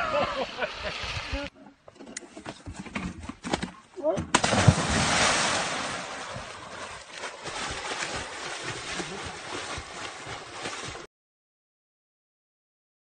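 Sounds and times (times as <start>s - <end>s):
person plunging into water: 4.2s - 11.1s
person splashing in water: 4.3s - 11.1s.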